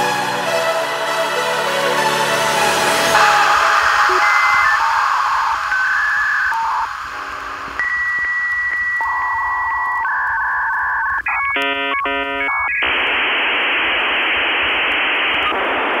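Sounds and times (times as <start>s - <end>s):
loud hiss of data noise: 3.1s - 16.0s
dial-up modem handshake tones: 3.2s - 15.6s.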